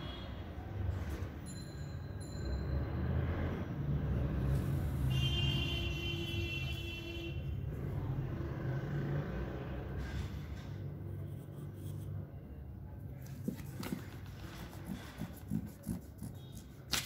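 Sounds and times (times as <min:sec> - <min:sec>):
pencil strokes on paper: 0:11.1 - 0:12.3, 0:13.1 - 0:17.0.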